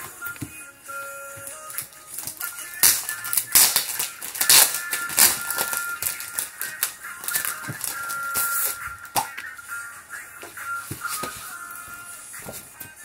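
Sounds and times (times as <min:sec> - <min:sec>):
soft background music: 0:00.0 - 0:13.0
paper sheets rustling: 0:01.7 - 0:09.2, 0:10.8 - 0:12.8.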